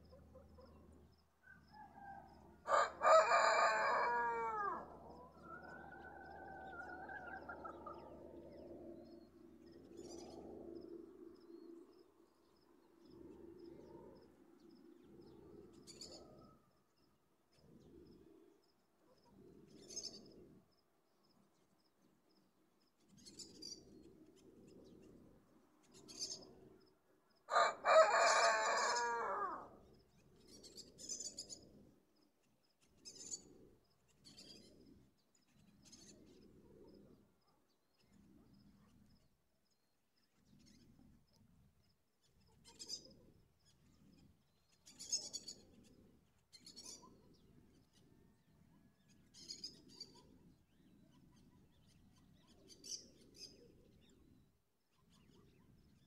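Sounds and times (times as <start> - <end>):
rooster crowing: 1.7 - 8.0, 27.5 - 29.7
small birds chirping: 5.0 - 27.4, 29.8 - 56.0.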